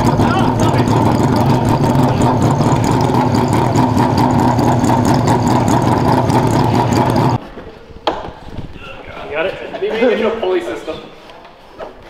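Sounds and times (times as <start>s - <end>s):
engine idling: 0.0s - 7.4s.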